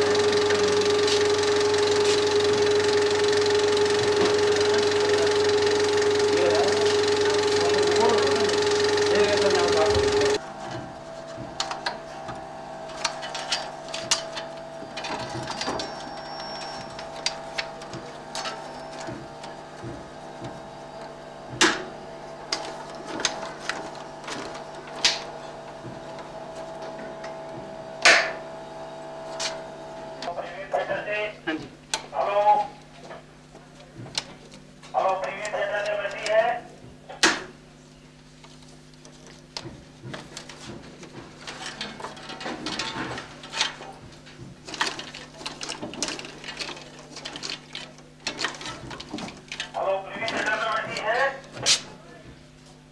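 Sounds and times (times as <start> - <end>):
mechanical clatter: 0.0 - 10.4
film projector hum: 0.0 - 52.9.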